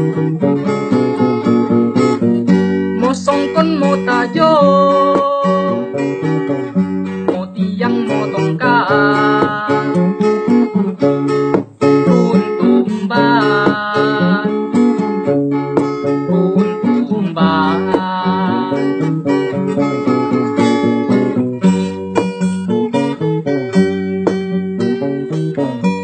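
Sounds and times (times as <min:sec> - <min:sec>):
acoustic guitar strummed: 0:00.0 - 0:26.0
man singing: 0:03.0 - 0:06.0, 0:07.3 - 0:10.3, 0:12.0 - 0:14.8, 0:16.8 - 0:19.1.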